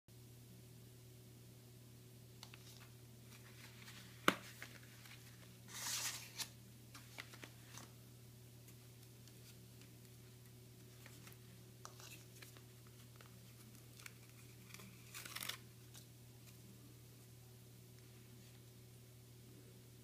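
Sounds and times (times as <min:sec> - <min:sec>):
faint steady hum: 0:00.1 - 0:20.0.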